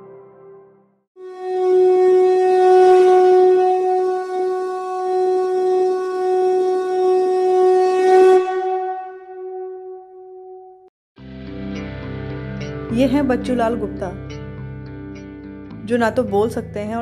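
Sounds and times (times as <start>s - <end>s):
long horn note: 1.2s - 10.0s.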